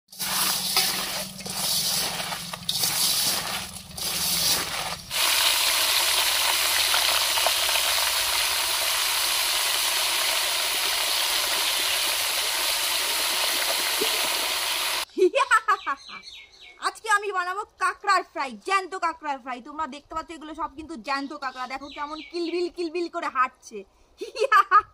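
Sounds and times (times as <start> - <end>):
crabs rattling in steel bowl: 0.1 - 8.4
deep-frying sizzle: 0.1 - 15.1.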